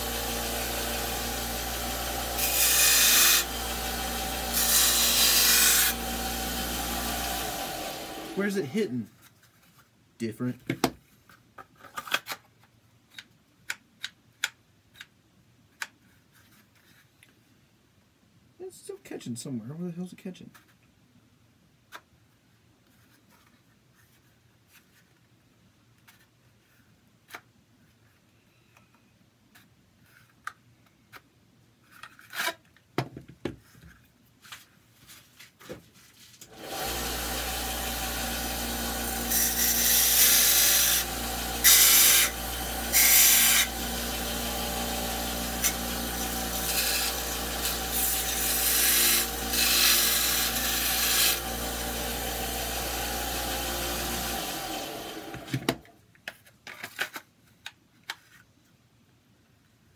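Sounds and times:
electric sanding tool running: 0:00.0 - 0:08.4, 0:36.6 - 0:55.5.

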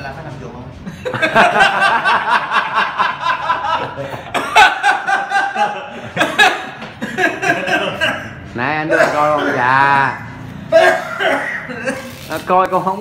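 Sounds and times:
men laughing: 0:00.8 - 0:08.5.

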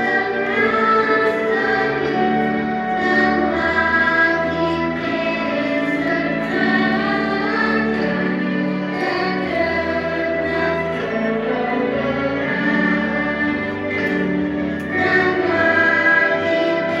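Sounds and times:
choir singing long notes: 0:00.0 - 0:17.0.

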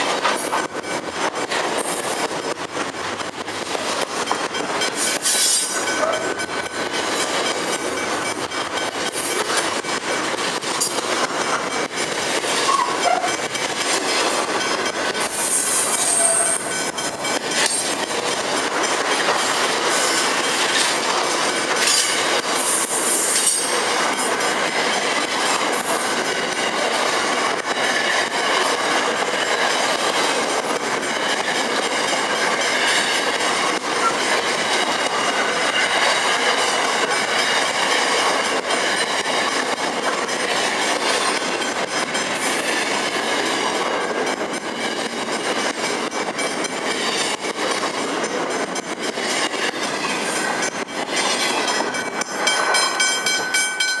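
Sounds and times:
train wheels clattering over rail: 0:00.0 - 0:54.0
high-pitched wheel squeals: 0:12.6 - 0:13.4, 0:15.4 - 0:17.1.

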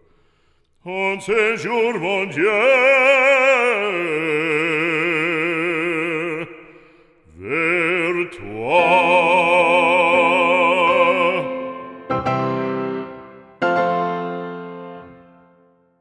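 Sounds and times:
operatic voice singing a hymn: 0:00.8 - 0:12.1.

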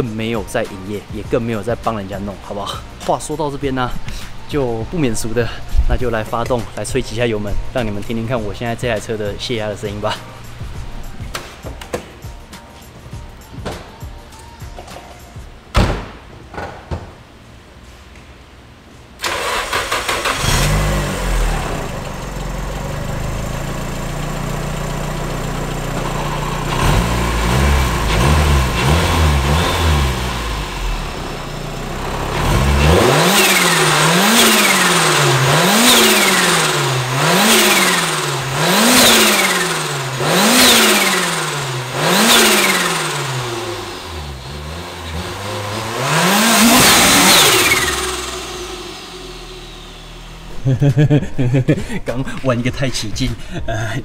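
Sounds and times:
car engine starting and revving: 0:19.2 - 0:51.1.

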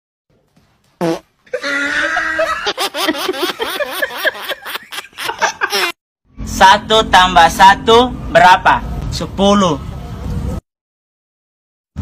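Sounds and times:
fart sounds: 0:01.0 - 0:01.4
woman laughing: 0:01.5 - 0:06.0.

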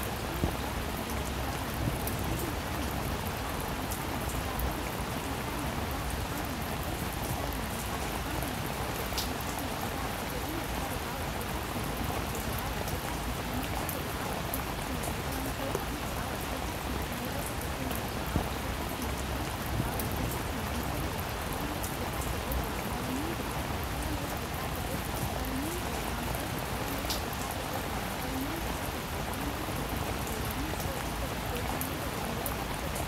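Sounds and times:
steady rain: 0:00.0 - 0:33.0.

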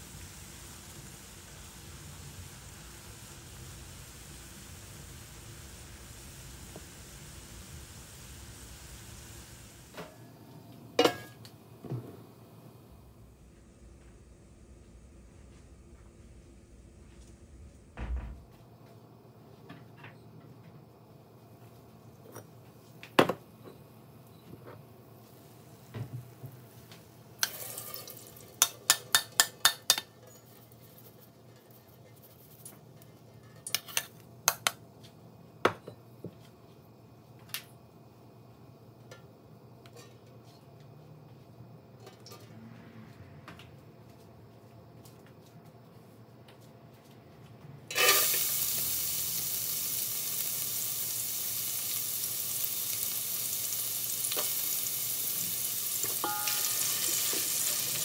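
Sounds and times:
metal utensils clinking on pot: 0:47.9 - 0:48.4, 0:56.0 - 0:57.7
strainer tapping against pot: 0:56.1 - 0:56.8.

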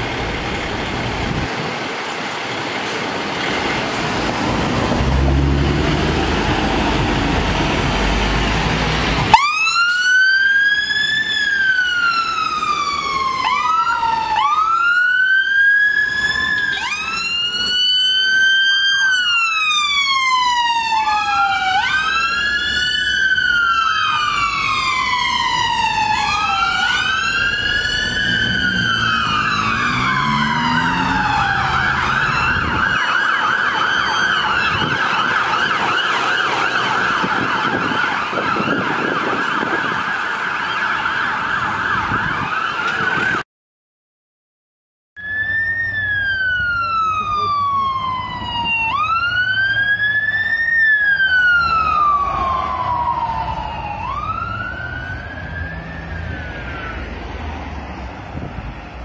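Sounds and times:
heavy truck engine running: 0:00.0 - 0:09.4
wailing sirens: 0:03.4 - 0:43.4, 0:45.2 - 0:59.0
siren yelping: 0:09.2 - 0:43.4, 0:45.2 - 0:57.3.

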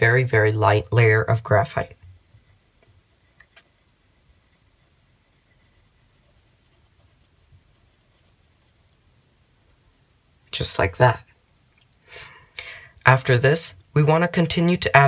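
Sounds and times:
pencil scratching on paper: 0:01.3 - 0:10.7.

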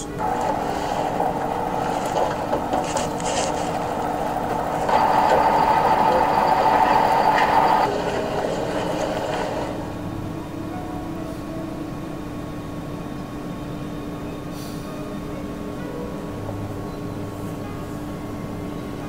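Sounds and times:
truck engine and road noise: 0:00.0 - 0:19.0.

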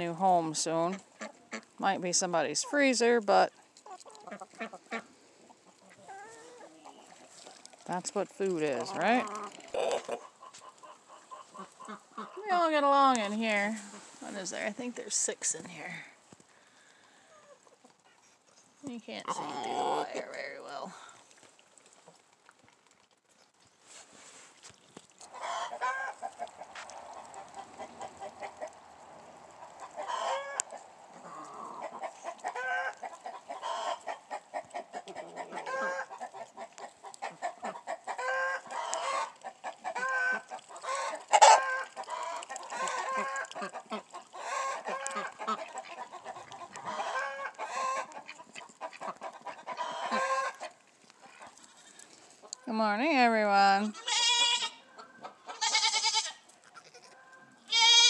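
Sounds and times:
chickens clucking: 0:00.0 - 0:15.5, 0:25.2 - 0:53.2, 0:54.8 - 0:55.6.

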